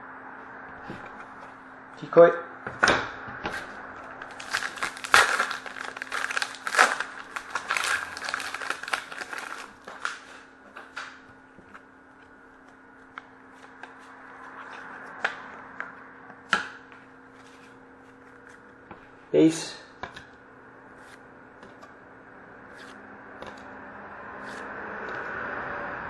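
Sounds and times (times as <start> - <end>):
wrapper tearing and crinkling: 4.2 - 10.3.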